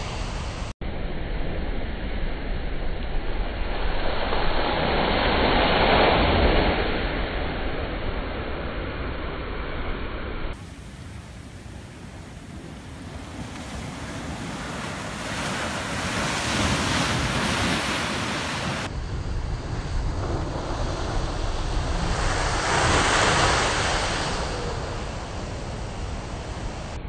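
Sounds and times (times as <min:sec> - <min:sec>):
ocean waves crashing on rocks: 0:10.6 - 0:27.0.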